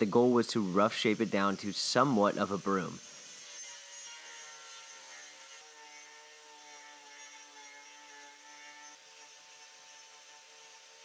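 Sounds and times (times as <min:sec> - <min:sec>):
angle grinder whirring: 0:00.0 - 0:11.0.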